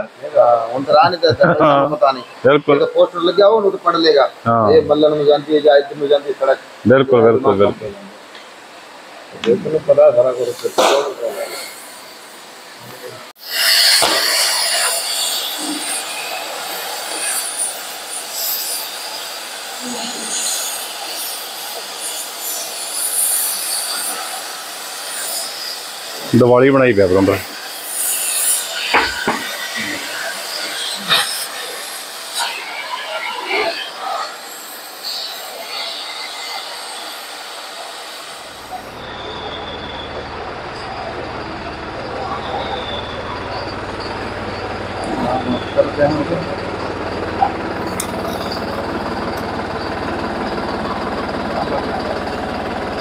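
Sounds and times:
cutting torch hissing: 0:00.0 - 0:53.0
tractor diesel engine idling: 0:38.8 - 0:53.0.

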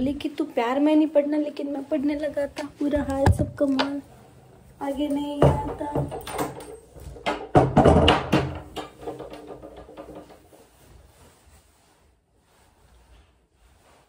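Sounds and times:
clothing rustling: 0:08.9 - 0:14.0.

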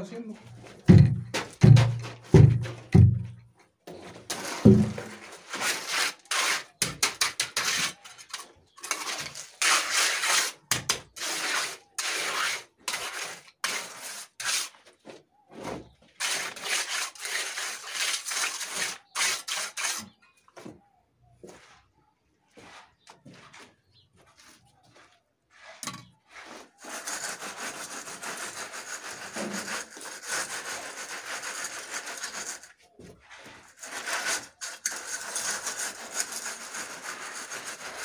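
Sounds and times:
trowel scraping wet concrete: 0:00.5 - 0:03.3, 0:03.9 - 0:15.0, 0:15.6 - 0:20.4, 0:25.5 - 0:38.0
thump: 0:00.9 - 0:03.4.

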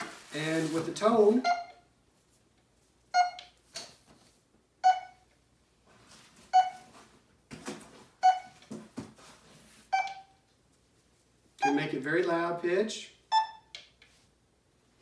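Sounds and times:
rustling: 0:00.0 - 0:01.4
short beeps: 0:01.4 - 0:01.8, 0:03.2 - 0:03.4, 0:04.8 - 0:05.2, 0:06.5 - 0:06.9, 0:08.2 - 0:08.6, 0:09.9 - 0:10.4, 0:13.3 - 0:13.7.

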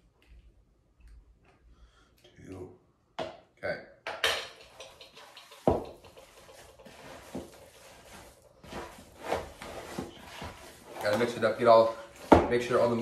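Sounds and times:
hands mixing meat: 0:04.8 - 0:13.0.

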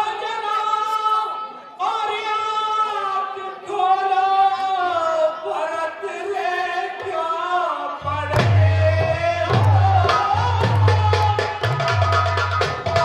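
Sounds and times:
person singing through loudspeakers: 0:00.0 - 0:13.0
drums playing: 0:08.0 - 0:13.0.

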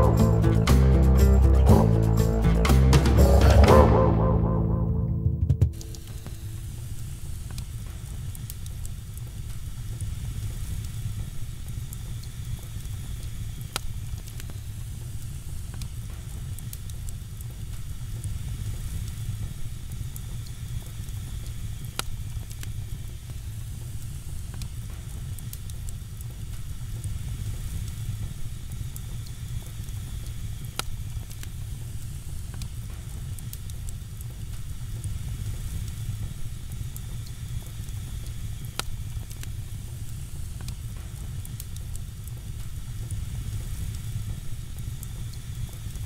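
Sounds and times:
fire rumbling: 0:00.0 - 0:04.6, 0:05.2 - 0:46.0
fire crackling and popping: 0:05.7 - 0:46.0.

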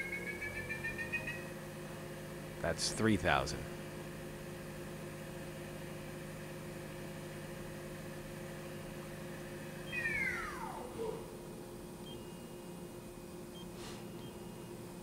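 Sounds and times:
spindle whine falling in pitch: 0:00.0 - 0:01.6, 0:08.8 - 0:12.8.

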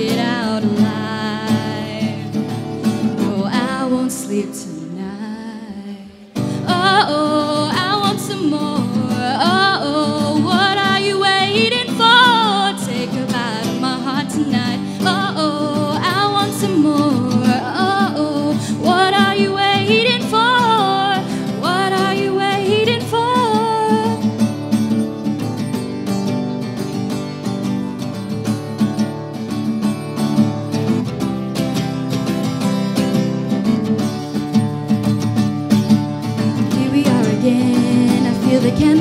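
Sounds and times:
woman singing a pop song: 0:00.0 - 0:24.4, 0:36.5 - 0:39.0
acoustic guitar: 0:00.0 - 0:39.0.

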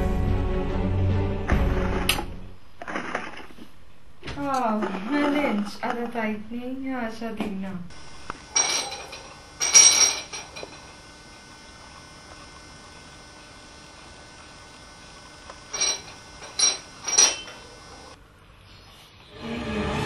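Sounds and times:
faint steady hum: 0:01.5 - 0:19.6
dishes clinking: 0:08.5 - 0:10.9, 0:15.7 - 0:18.1.

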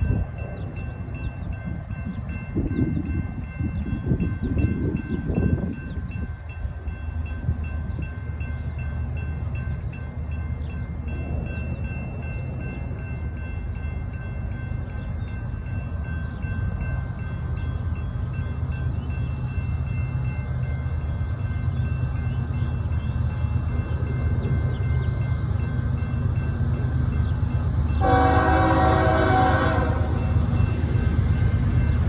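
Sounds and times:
wind hitting microphone: 0:00.0 - 0:08.4
diesel train rumble: 0:00.0 - 0:32.0
railroad crossing bell ringing: 0:00.0 - 0:32.0.

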